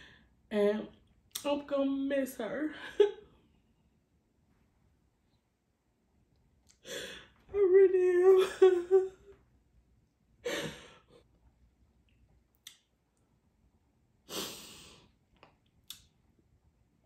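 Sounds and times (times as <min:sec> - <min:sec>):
woman sighing breaths crying: 0:06.8 - 0:07.4, 0:10.4 - 0:11.2.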